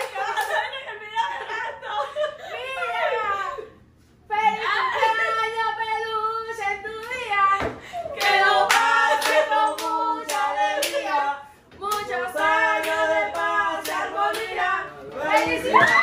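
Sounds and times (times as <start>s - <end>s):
hand claps: 11.9s - 12.2s.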